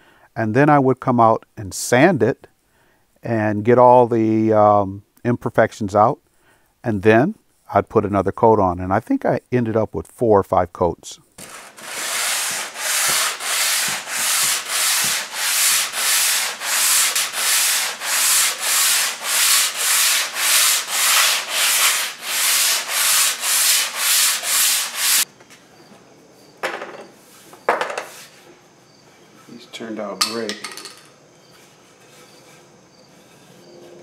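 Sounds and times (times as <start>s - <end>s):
sandpaper sanding wood: 11.4s - 25.3s.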